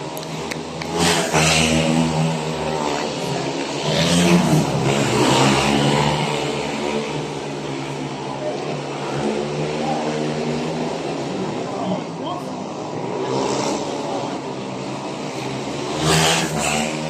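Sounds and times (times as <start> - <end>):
motorcycle engines racing: 0.0 - 17.0.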